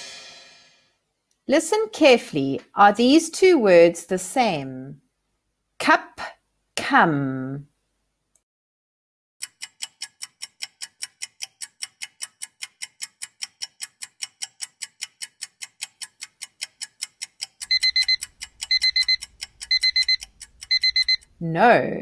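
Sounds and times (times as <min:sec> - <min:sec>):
clock ticking fast: 0:09.4 - 0:21.4
alarm beeping in high bursts: 0:17.7 - 0:21.2.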